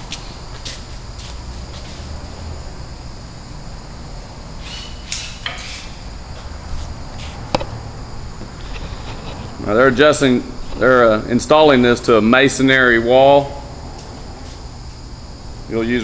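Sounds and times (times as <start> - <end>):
faint high whine: 0.0 - 16.0
sharp click: 4.7 - 5.9.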